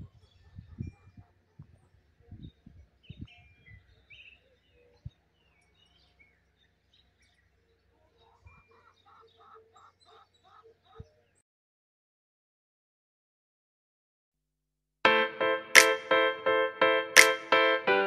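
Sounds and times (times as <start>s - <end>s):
birds chirping: 1.8s - 11.4s.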